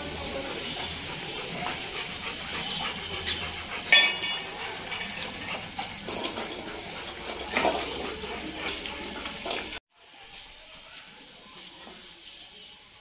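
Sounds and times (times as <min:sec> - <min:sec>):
steel bowls clanking on tiles: 0:01.6 - 0:09.8.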